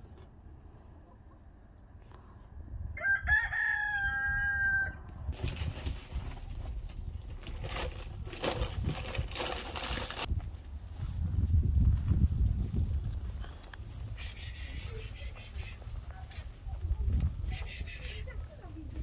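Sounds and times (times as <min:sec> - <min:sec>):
rooster crowing: 0:03.0 - 0:05.0
rustling and crackling: 0:05.3 - 0:14.2.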